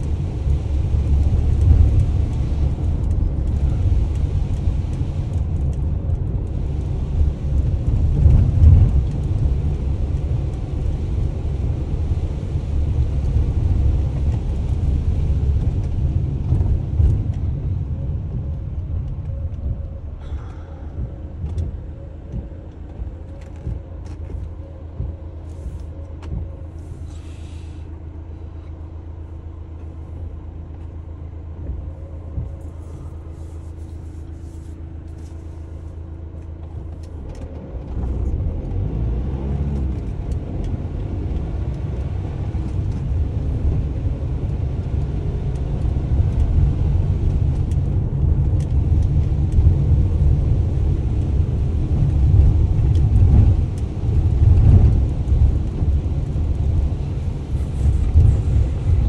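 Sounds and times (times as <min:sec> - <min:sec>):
van engine idling: 0:00.0 - 0:37.3, 0:42.8 - 0:59.0
van driving away rumble: 0:37.6 - 0:59.0.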